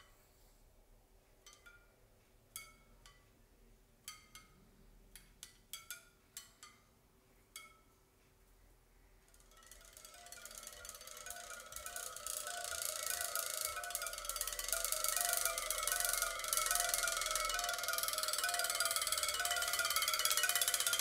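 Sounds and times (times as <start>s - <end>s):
bicycle spokes plucked: 9.3s - 21.0s.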